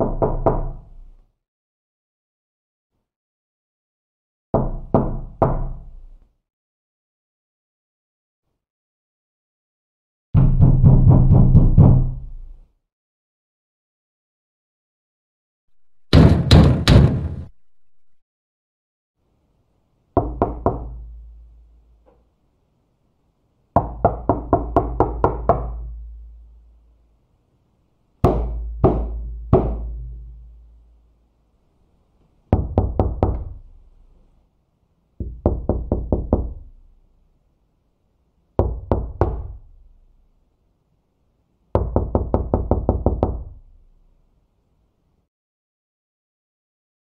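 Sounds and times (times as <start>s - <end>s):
knuckles knocking on wooden door: 10.4s - 12.2s, 20.2s - 21.0s, 23.8s - 25.8s, 28.2s - 29.9s, 35.2s - 36.6s, 41.8s - 43.5s.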